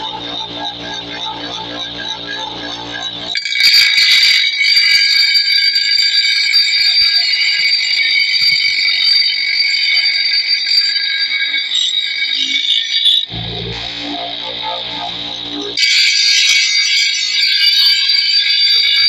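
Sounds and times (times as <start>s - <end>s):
bench grinder grinding steel: 0.0s - 4.6s, 12.7s - 19.0s.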